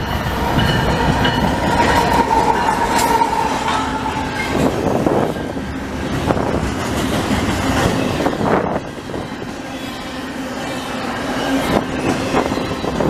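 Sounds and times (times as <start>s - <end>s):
diesel locomotive whine: 0.0s - 13.0s
freight cars rumbling: 0.0s - 13.0s.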